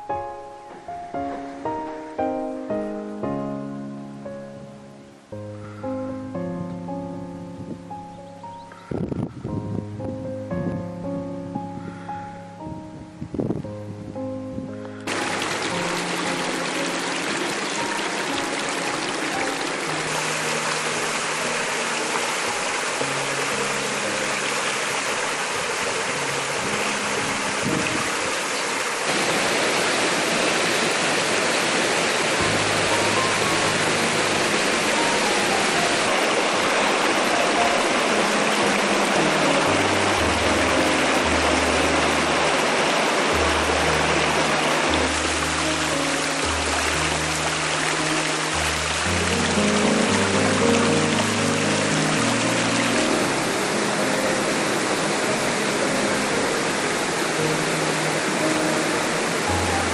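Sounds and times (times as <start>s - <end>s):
slow low background music: 0.0s - 28.0s, 32.4s - 59.9s
waterfall rushing and splashing: 15.0s - 59.9s.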